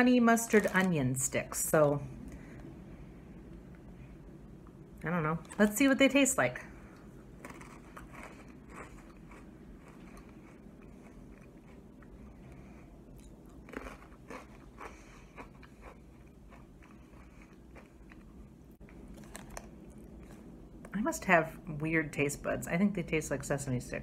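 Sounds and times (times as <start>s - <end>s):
person chewing crunchy snack: 7.3s - 20.5s.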